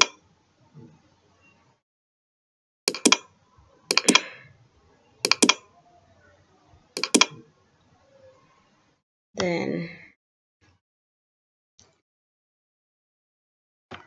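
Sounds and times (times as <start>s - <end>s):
mouse button clicks: 2.9s - 3.2s, 3.9s - 4.2s, 5.3s - 5.6s, 7.0s - 7.4s.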